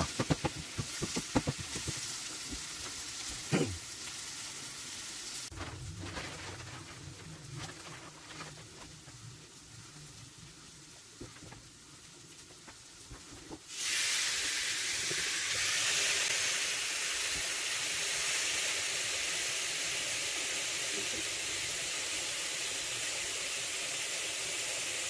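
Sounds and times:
steady sizzling hiss of steam: 0.0s - 5.5s, 8.6s - 25.0s
food crackling and popping: 0.0s - 19.3s.

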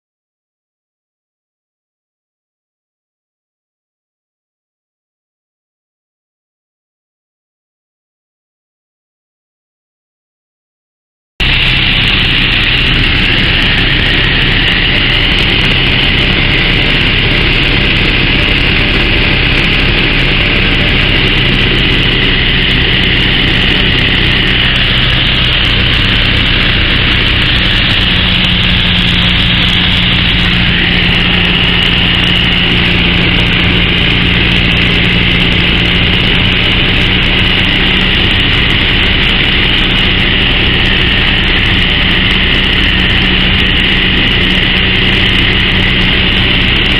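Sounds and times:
aircraft engine and propeller droning: 11.4s - 46.9s.

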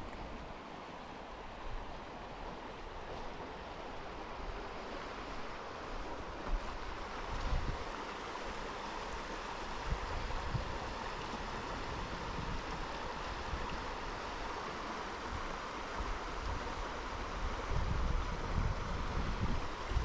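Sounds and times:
river rushing over rocks: 0.0s - 20.0s
wind bumps on microphone: 6.5s - 7.8s, 17.4s - 20.0s.

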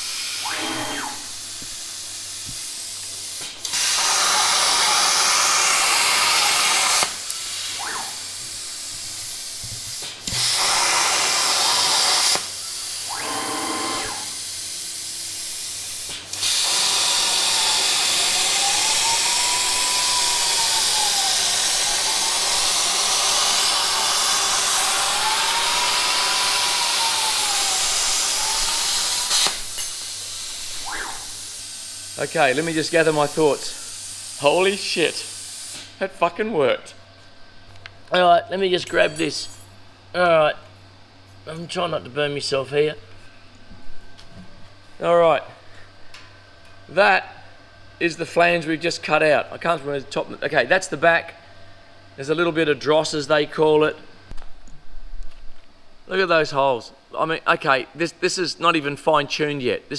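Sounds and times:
stepper motors whining: 0.0s - 1.8s, 3.4s - 9.0s, 9.6s - 14.5s, 15.1s - 33.4s
plasma cutter arc hiss: 0.0s - 36.0s
air hiss: 15.5s - 36.0s.

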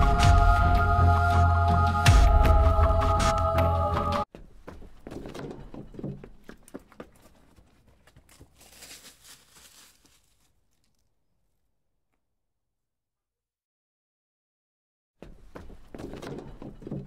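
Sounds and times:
footsteps on gravel trail: 4.3s - 11.0s
rustling: 6.5s - 11.2s.

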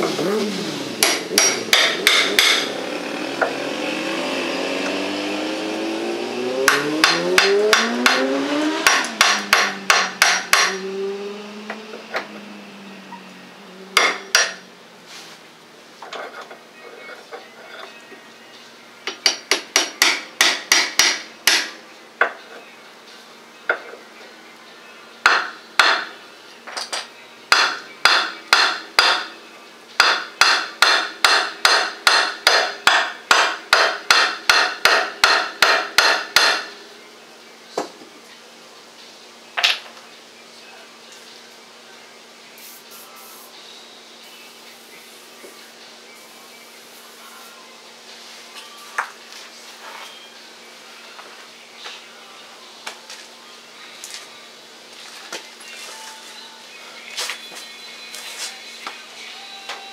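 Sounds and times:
hammer striking metal bolt: 1.0s - 2.7s, 8.8s - 10.8s, 14.0s - 14.6s, 19.1s - 21.8s, 25.2s - 26.1s, 26.9s - 29.3s, 30.0s - 36.7s.

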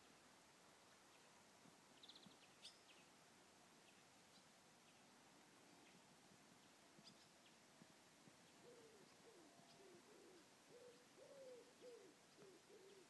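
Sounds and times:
faint high bird chirps: 2.0s - 3.1s, 7.0s - 7.6s, 8.5s - 13.0s
dove cooing: 8.6s - 13.0s.

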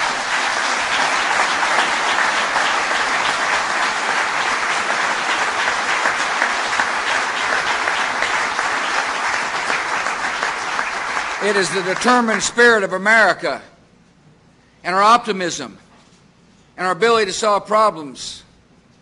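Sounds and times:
audience applauding: 0.0s - 12.5s.

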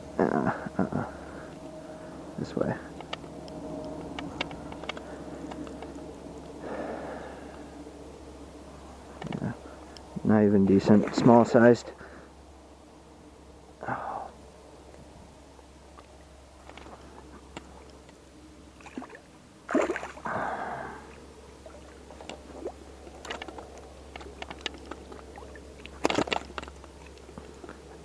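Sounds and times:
fish splashing in shallow water: 15.8s - 18.1s, 18.7s - 28.0s
handling knocks and rustles: 23.1s - 28.0s.

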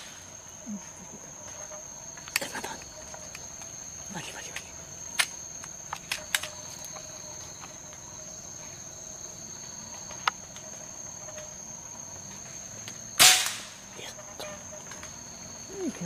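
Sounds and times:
insects buzzing: 0.0s - 16.0s
air rifle shot: 13.2s - 13.8s.

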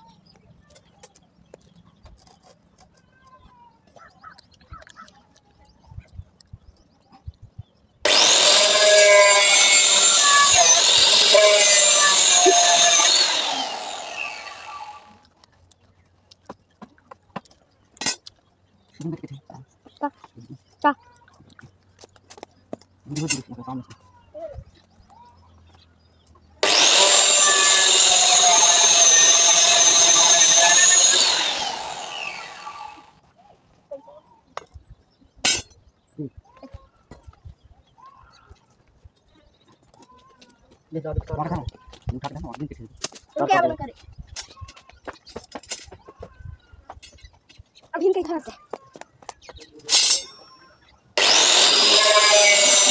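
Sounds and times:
grinder disc spinning down: 8.0s - 15.2s, 26.6s - 33.2s, 51.2s - 52.9s
angle grinder cutting steel: 8.0s - 15.3s, 26.6s - 33.2s, 49.9s - 50.6s, 51.2s - 52.9s.

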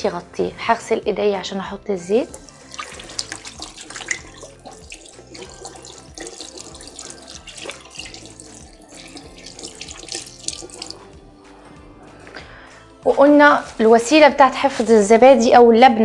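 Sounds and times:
tap running into sink: 2.3s - 11.1s
hands splashing in water: 2.3s - 11.2s.

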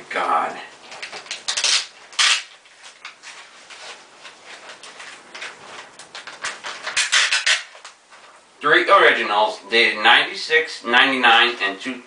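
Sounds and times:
paper rustling: 0.8s - 8.4s.

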